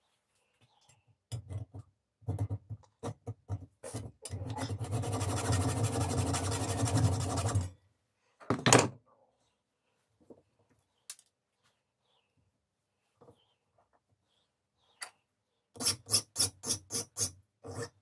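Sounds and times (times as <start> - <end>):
tool rasping and scraping: 3.8 - 7.7, 15.8 - 18.0.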